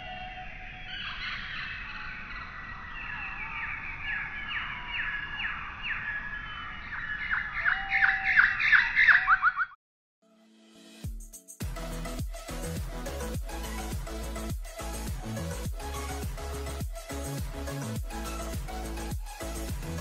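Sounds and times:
birds squawking: 0:00.8 - 0:09.7.

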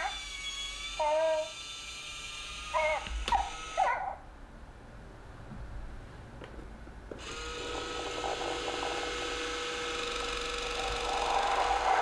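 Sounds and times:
electric motors whirring with rattle: 0:00.0 - 0:04.1, 0:07.1 - 0:12.0.

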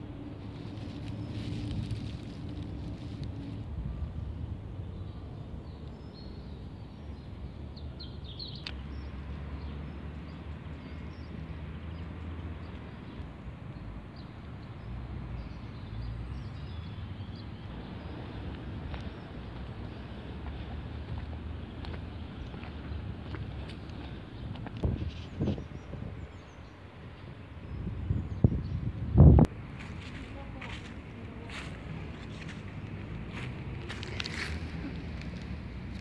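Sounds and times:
footsteps on a dirt path: 0:18.4 - 0:25.7, 0:29.7 - 0:36.0.

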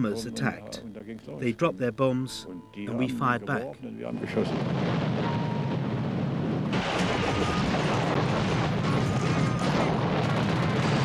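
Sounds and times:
explosions: 0:04.3 - 0:11.0
gunfire: 0:06.7 - 0:11.0.

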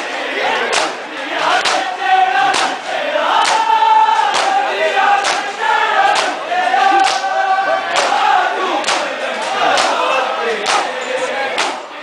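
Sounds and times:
men chanting in unison: 0:00.0 - 0:12.0
hands slapping bare chests: 0:00.7 - 0:01.0, 0:02.5 - 0:02.8, 0:03.4 - 0:03.7, 0:04.3 - 0:04.6, 0:05.2 - 0:05.5, 0:06.1 - 0:06.4, 0:11.6 - 0:11.8.

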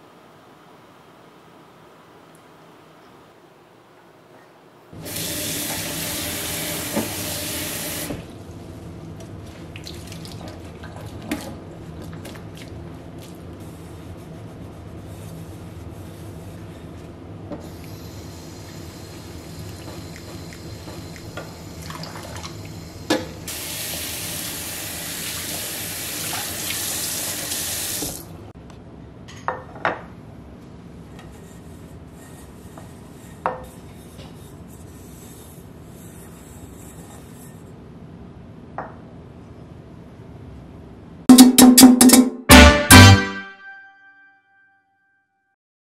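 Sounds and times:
tap water running into sink: 0:05.0 - 0:08.2, 0:23.5 - 0:28.3
loud music: 0:41.3 - 0:44.0.

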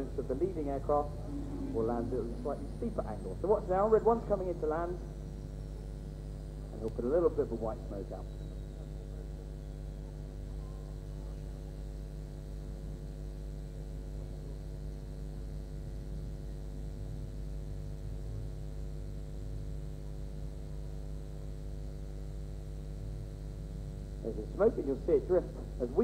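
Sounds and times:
electrical hum and buzz: 0:00.0 - 0:26.0.

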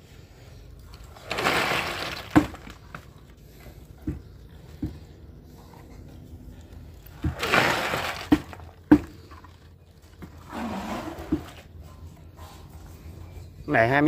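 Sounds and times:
wet concrete sliding and sloshing: 0:00.9 - 0:03.2, 0:07.0 - 0:11.8
bucket knocking against timber: 0:07.2 - 0:09.3, 0:11.2 - 0:11.6.

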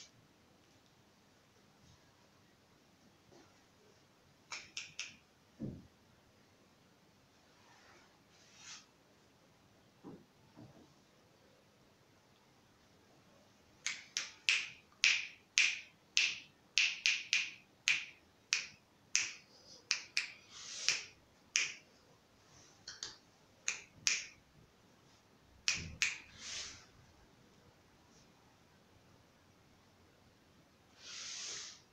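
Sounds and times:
finger snapping: 0:04.5 - 0:05.2, 0:13.8 - 0:21.8, 0:22.9 - 0:24.4, 0:25.7 - 0:26.3.

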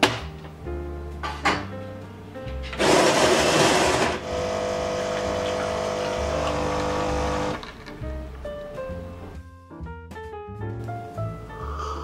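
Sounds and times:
coffee grinder whirring: 0:02.8 - 0:07.6
coffee machine pump humming: 0:02.8 - 0:07.6.

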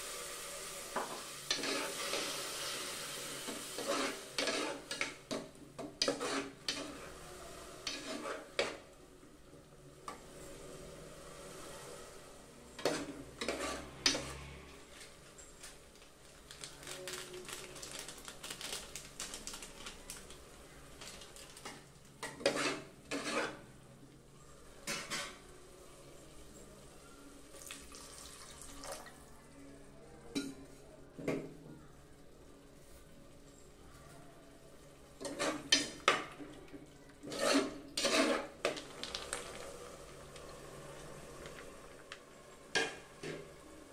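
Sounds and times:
food frying: 0:00.0 - 0:08.9, 0:27.5 - 0:29.2, 0:37.4 - 0:43.9
ladle scraping a pot: 0:01.5 - 0:02.7, 0:03.4 - 0:05.4, 0:06.0 - 0:07.2, 0:07.8 - 0:08.9, 0:12.7 - 0:14.6, 0:22.2 - 0:23.7, 0:35.2 - 0:36.2, 0:37.2 - 0:39.7.

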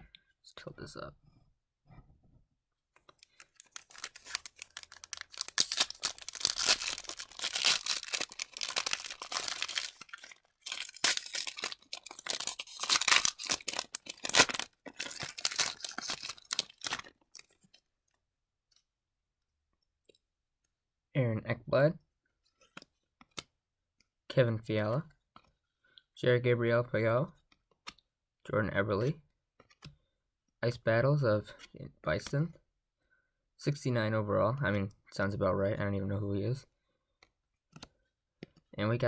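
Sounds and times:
foil wrapper crinkling: 0:03.2 - 0:17.5.

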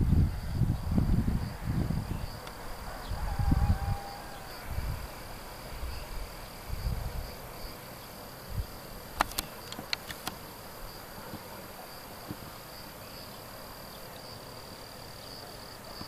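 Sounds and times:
insects trilling: 0:00.0 - 0:16.0
sharp clicks: 0:09.2 - 0:10.4.

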